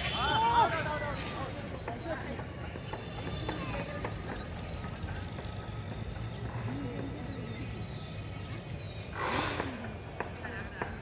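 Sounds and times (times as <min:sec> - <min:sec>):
distant voices calling: 0:00.0 - 0:11.0
small birds chirping: 0:00.0 - 0:11.0
burst of noise: 0:09.1 - 0:10.2.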